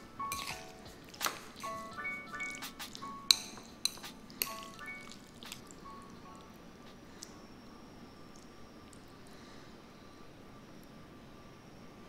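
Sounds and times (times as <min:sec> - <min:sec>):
soft background music: 0:00.0 - 0:08.2
utensils clinking against a bowl: 0:00.2 - 0:05.6.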